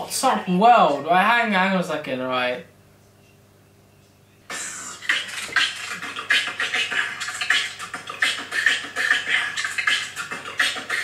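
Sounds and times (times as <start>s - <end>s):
person beatboxing: 4.5s - 11.0s.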